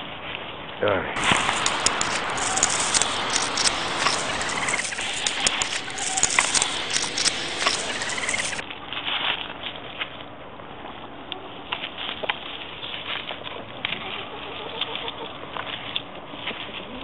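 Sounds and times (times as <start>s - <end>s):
dry leaves and twigs crackling: 1.2s - 9.1s.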